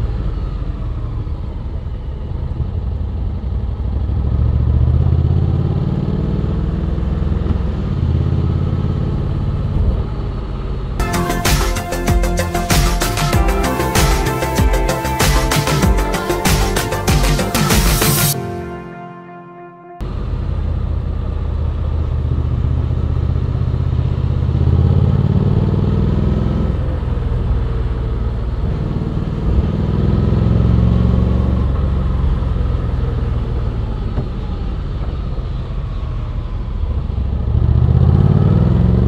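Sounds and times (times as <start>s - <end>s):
motorcycle engine revving: 37.3s - 39.0s.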